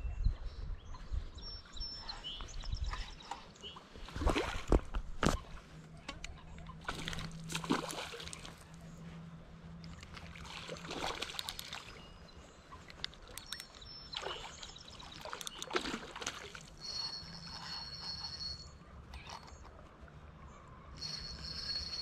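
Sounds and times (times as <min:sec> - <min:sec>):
water splashing from thrashing fish: 0:06.8 - 0:08.6, 0:10.1 - 0:12.0, 0:14.1 - 0:16.8.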